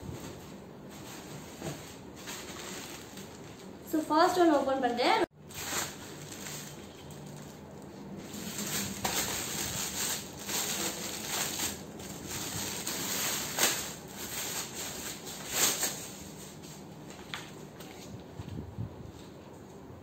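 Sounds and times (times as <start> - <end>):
plastic bag crinkling: 0.2 - 3.8, 5.3 - 16.6.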